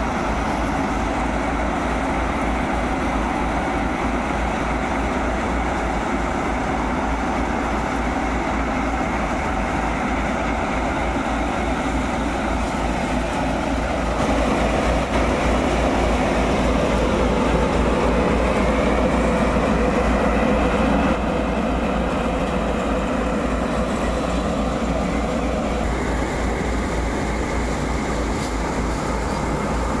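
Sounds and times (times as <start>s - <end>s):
tractor engine: 0.0s - 30.0s
thresher running: 10.4s - 30.0s.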